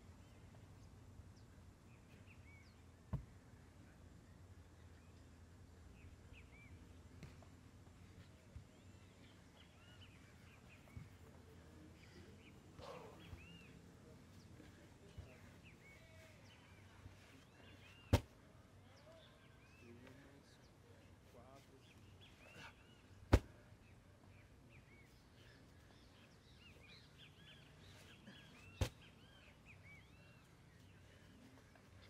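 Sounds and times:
small birds chirping: 0.0s - 32.0s
sharp thump on turf: 3.1s - 3.3s, 18.1s - 18.3s, 23.3s - 23.6s.

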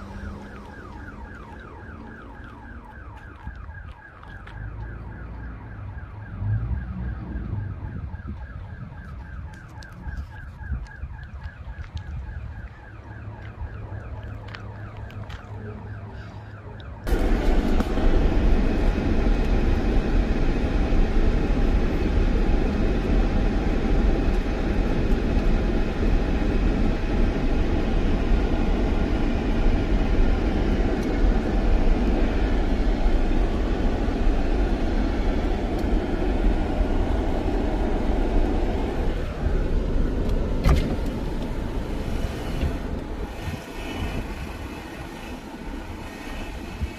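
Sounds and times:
car road and wind noise: 0.0s - 46.9s.

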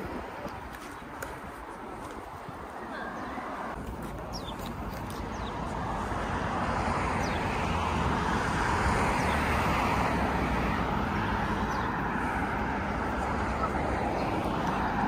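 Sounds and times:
car passing: 5.3s - 15.0s.

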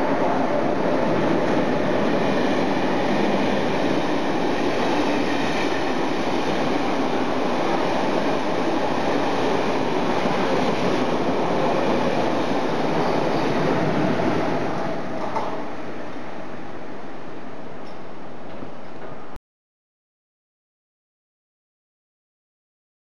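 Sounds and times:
train rushing past: 0.0s - 17.7s.

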